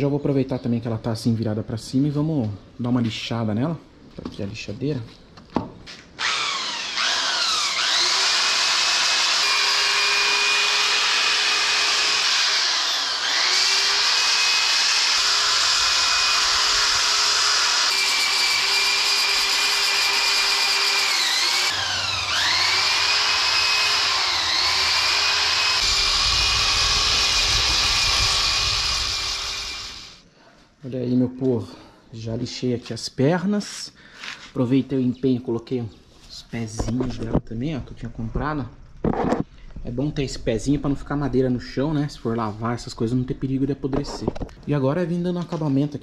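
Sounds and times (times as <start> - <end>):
electric drill sanding wood: 6.2 - 30.2.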